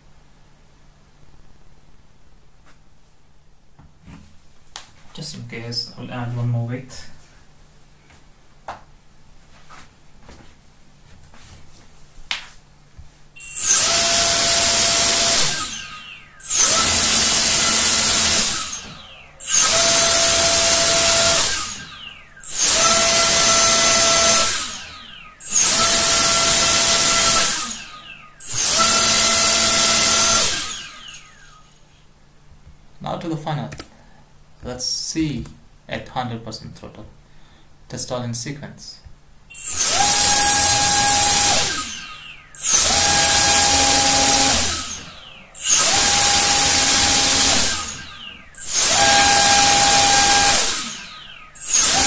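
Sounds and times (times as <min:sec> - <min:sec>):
drone motors whining: 0:13.4 - 0:31.8, 0:39.5 - 0:52.0.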